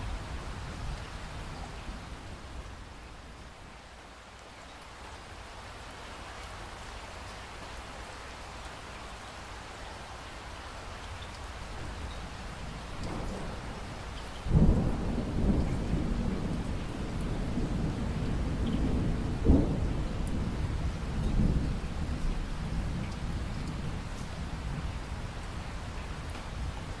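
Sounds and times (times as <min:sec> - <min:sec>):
steady rain falling: 0:00.0 - 0:27.0
thunder rumbling: 0:12.6 - 0:24.8.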